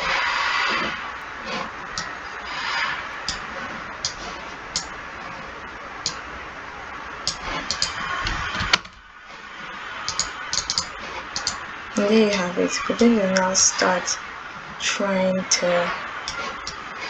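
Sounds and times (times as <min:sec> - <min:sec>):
steady background hiss: 0:00.0 - 0:17.0
computer mouse clicks: 0:07.3 - 0:08.0, 0:10.1 - 0:11.6.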